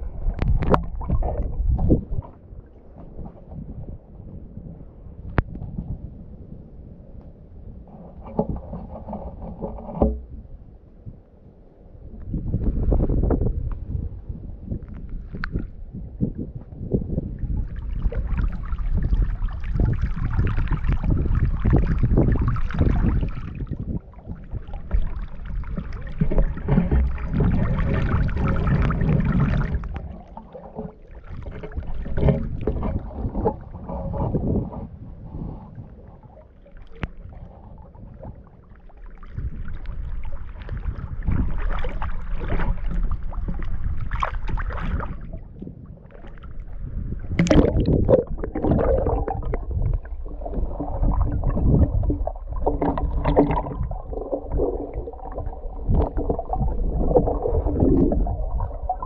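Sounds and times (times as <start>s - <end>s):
low rumble: 15.7s - 59.0s
water sloshing around waders: 17.4s - 34.6s, 36.0s - 59.0s.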